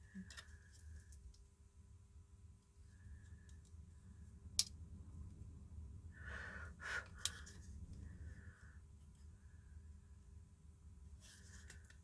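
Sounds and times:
low steady hum: 0:00.0 - 0:12.0
person breathing out: 0:06.2 - 0:07.4.

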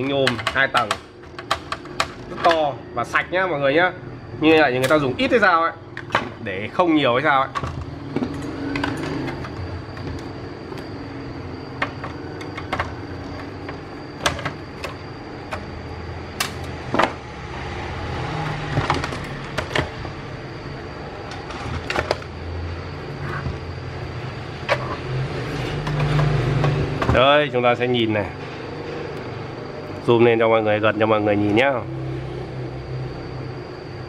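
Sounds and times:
clicks and knocks of tools: 0:00.0 - 0:02.6, 0:07.5 - 0:10.8.

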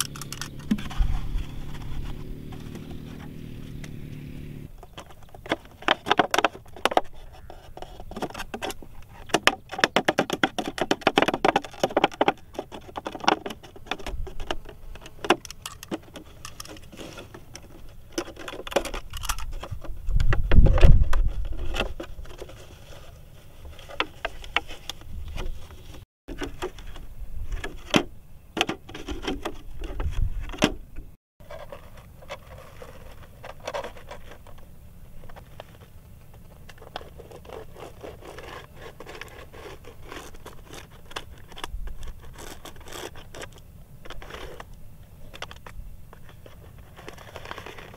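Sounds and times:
scrapes and clicks: 0:00.0 - 0:04.0, 0:28.6 - 0:47.9
knife cutting plastic bottle: 0:36.7 - 0:43.6.

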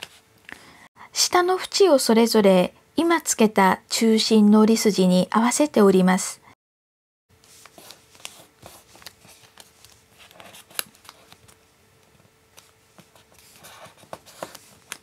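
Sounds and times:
paper rustling and crinkling: 0:07.4 - 0:15.0
paper fold ticks: 0:07.6 - 0:12.8.

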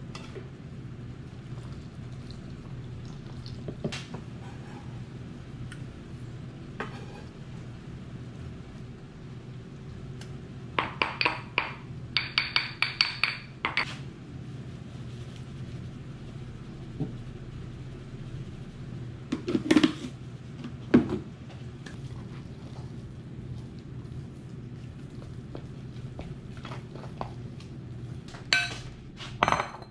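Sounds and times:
low hum: 0:13.4 - 0:19.3.

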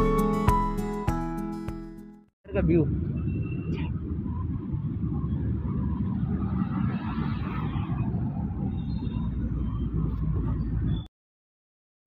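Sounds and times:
road traffic rumble: 0:02.5 - 0:11.1
vehicle passing: 0:02.6 - 0:11.0.

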